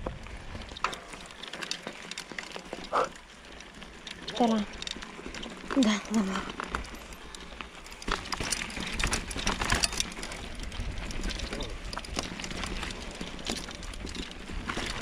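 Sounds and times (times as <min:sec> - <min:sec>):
wind rumble on microphone: 0:00.0 - 0:00.9
bike rattling over bumps: 0:00.0 - 0:15.0
bike tyres rolling over dirt: 0:00.0 - 0:15.0.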